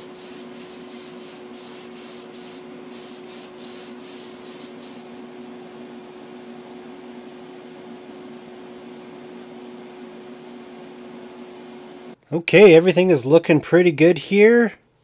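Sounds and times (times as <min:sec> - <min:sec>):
airbrush spray hiss: 0:00.0 - 0:05.1
exhaust fan humming: 0:00.0 - 0:13.1.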